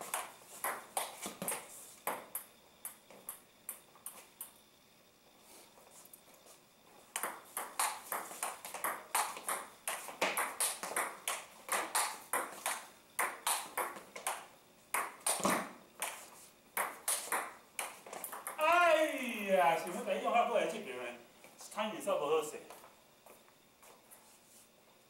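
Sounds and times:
table tennis ball hits: 0.0s - 3.8s, 7.2s - 16.2s, 16.8s - 19.4s.

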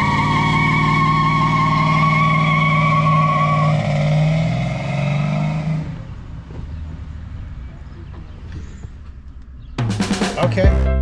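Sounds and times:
car engine at high revs: 0.0s - 6.2s.

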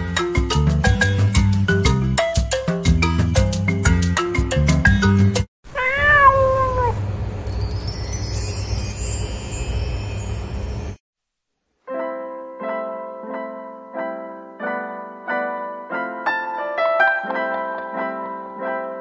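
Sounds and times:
glittering chime shimmer: 7.4s - 11.0s
gentle piano music: 11.9s - 19.0s.

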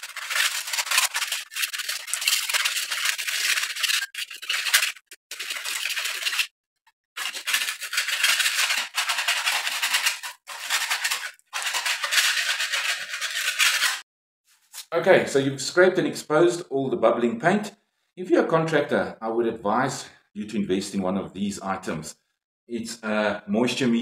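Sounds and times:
scraper scraping paint off wall: 7.2s - 14.0s.

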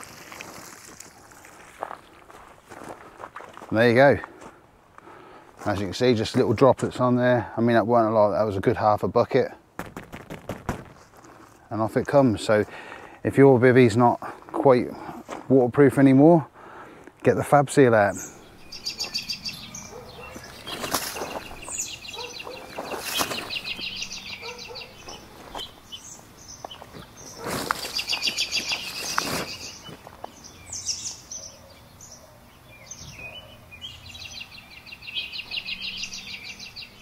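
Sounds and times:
bird singing rapid trills: 18.1s - 37.0s.

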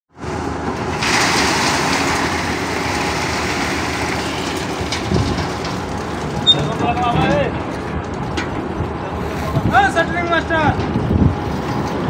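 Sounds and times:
engine running: 0.2s - 9.6s.

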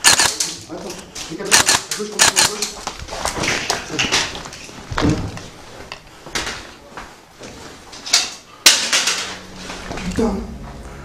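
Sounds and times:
footsteps on debris: 2.5s - 8.0s.

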